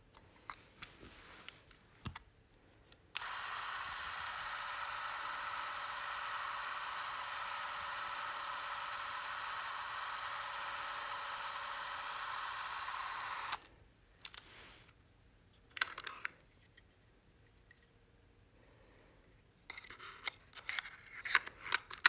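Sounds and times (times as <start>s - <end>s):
movie camera mechanism whirring: 3.2s - 13.7s.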